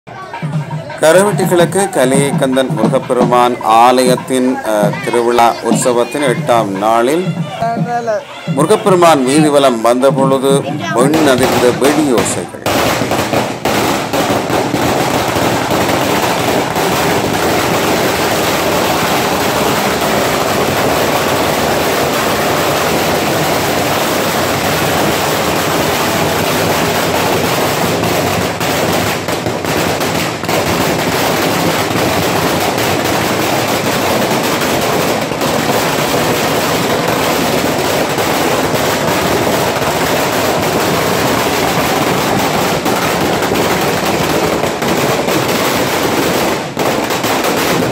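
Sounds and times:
firecrackers crackling: 0:00.1 - 0:47.9.

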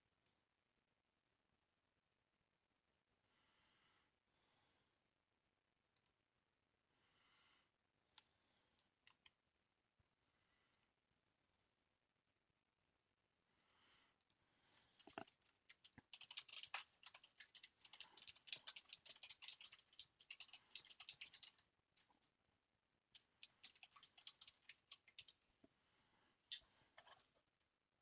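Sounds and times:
keyboard typing: 0:15.0 - 0:21.6, 0:23.2 - 0:25.4.

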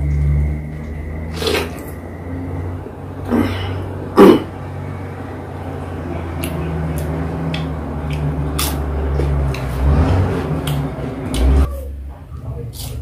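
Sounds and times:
steady low hum: 0:00.0 - 0:13.0
wet chewing: 0:06.4 - 0:10.0.

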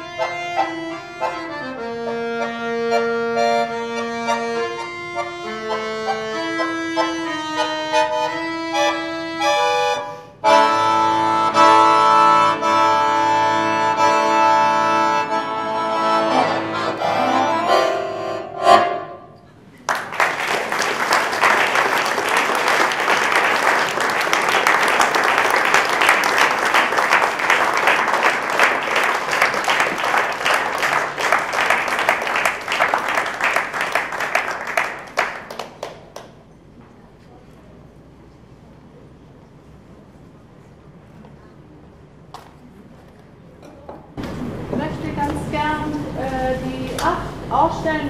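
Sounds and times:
accordion playing chords: 0:00.0 - 0:19.6
audience applause: 0:19.8 - 0:36.4.

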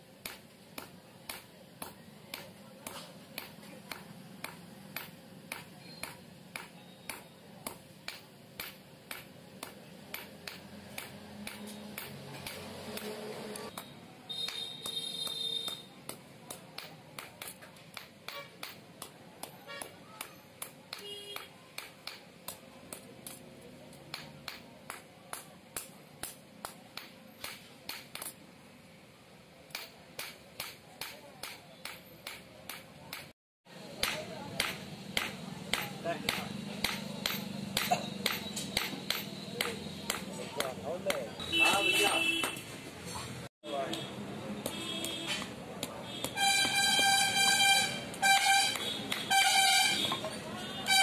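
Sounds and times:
hammer striking blade on anvil: 0:00.2 - 0:23.4, 0:29.7 - 0:33.3, 0:34.0 - 0:41.2.

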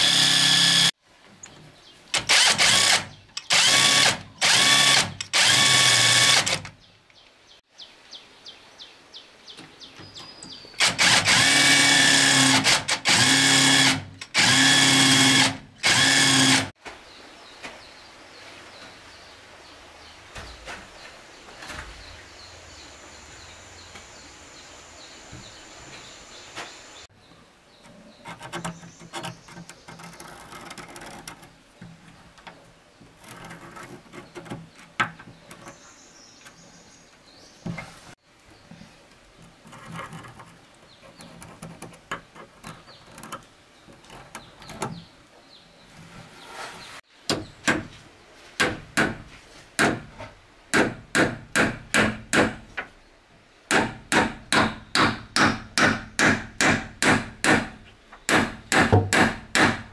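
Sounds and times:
quiet handling and rubbing: 0:27.8 - 0:36.0, 0:37.7 - 0:44.6, 0:45.8 - 0:47.1
hammer striking nail: 0:50.7 - 0:52.6, 0:53.7 - 0:59.9.

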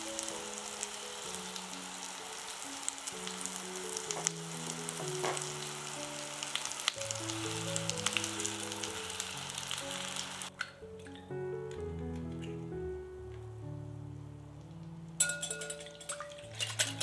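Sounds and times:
food sizzling in a frying pan: 0:00.0 - 0:10.5
soft background music: 0:00.0 - 0:17.0.

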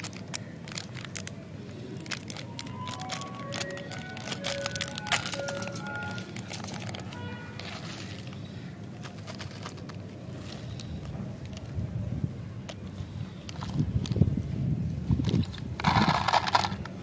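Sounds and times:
plastic candy wrapper crinkling: 0:00.0 - 0:11.7, 0:15.2 - 0:16.8
low steady background noise: 0:00.0 - 0:17.0.

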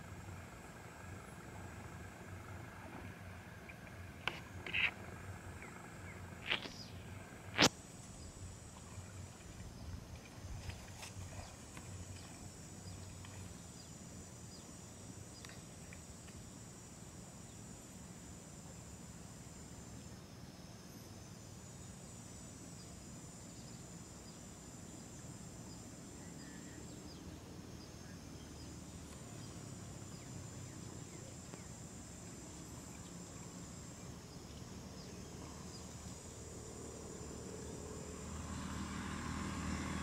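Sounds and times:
insects buzzing: 0:00.0 - 0:40.0
low background hum: 0:00.0 - 0:40.0
faint clicks: 0:15.4 - 0:16.4.

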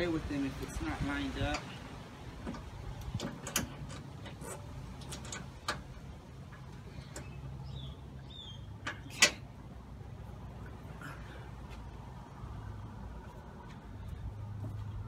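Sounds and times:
car radiator clicks and knocks: 0:02.4 - 0:07.3.

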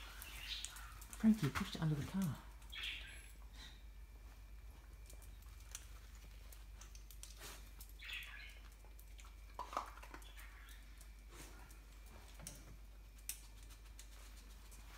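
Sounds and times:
dog claws on tiled floor: 0:04.5 - 0:14.9.

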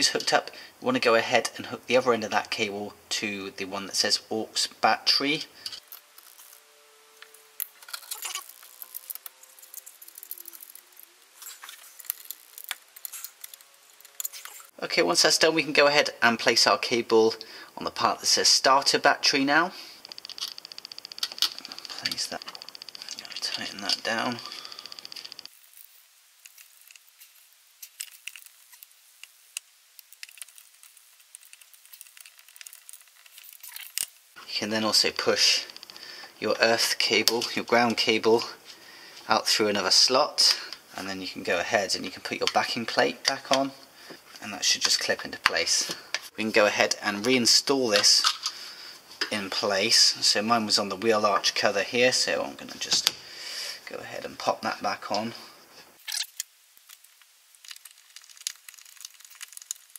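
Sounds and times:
faint steady hum: 0:00.0 - 0:59.9
small metallic clicks and rustles: 0:07.2 - 0:14.7, 0:20.0 - 0:34.3, 0:35.2 - 0:36.1, 0:56.0 - 0:59.9.

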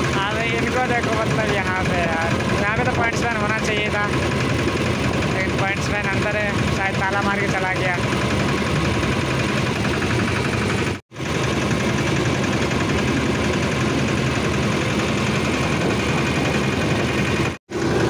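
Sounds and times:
motor trolley engine running: 0:00.0 - 0:18.0.

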